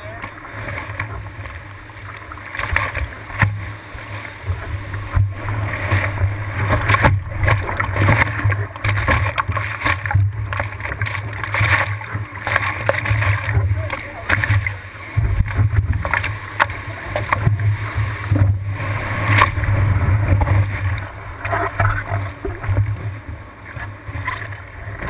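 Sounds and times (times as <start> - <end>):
steady low rumble: 0.0 - 25.0
surf rushing and splashing: 0.0 - 25.0
sharp slaps of water: 2.1 - 3.6, 5.2 - 14.8, 18.3 - 22.8.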